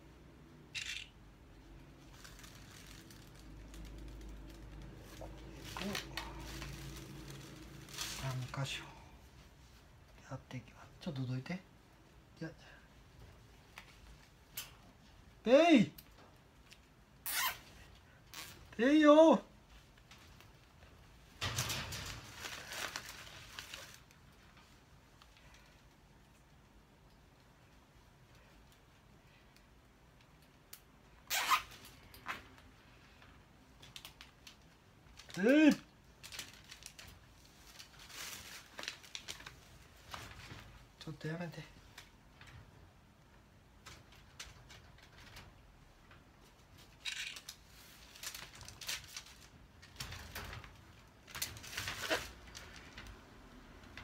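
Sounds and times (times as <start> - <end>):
cable tie zipping rasp: 17.2 - 17.7, 31.2 - 31.9.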